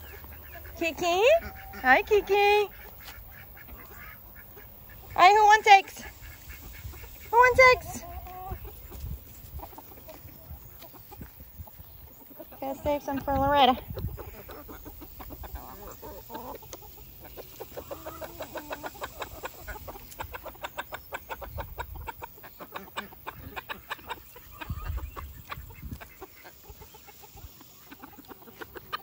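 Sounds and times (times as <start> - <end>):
chickens clucking: 0.0 - 29.0
drawn-out hen calls: 0.0 - 29.0.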